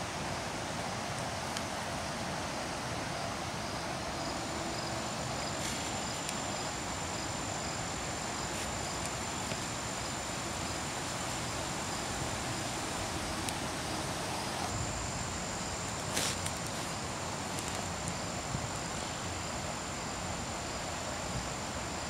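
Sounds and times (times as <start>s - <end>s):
steady hiss: 0.0s - 22.0s
insect high-pitched trill: 2.0s - 22.0s
insect short chirp: 3.6s - 14.1s.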